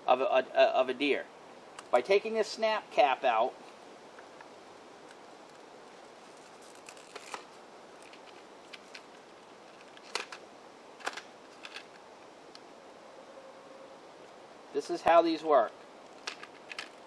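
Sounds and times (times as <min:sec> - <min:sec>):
plastic packaging crinkling: 0:05.5 - 0:10.4.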